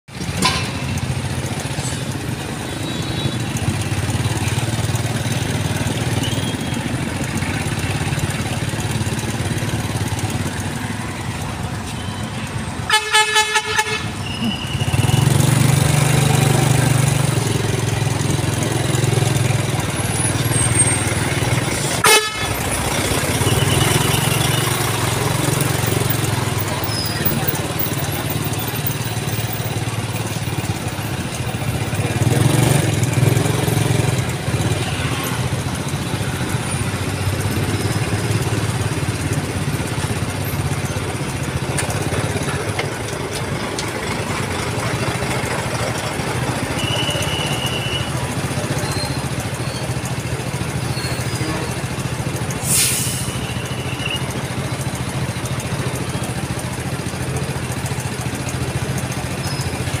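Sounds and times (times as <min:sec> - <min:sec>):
street traffic: 0:00.0 - 1:00.0
diesel engine idling: 0:00.1 - 1:00.0
brief hiss: 0:52.6 - 0:53.4.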